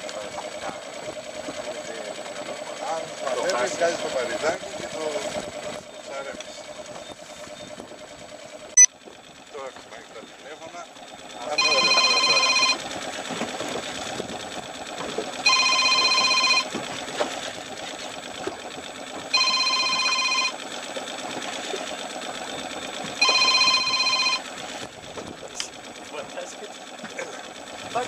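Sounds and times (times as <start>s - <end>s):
steady mechanical running: 0.0s - 28.0s
electronic alarm beep: 11.6s - 12.8s, 15.4s - 16.7s, 19.3s - 20.6s, 23.2s - 24.4s.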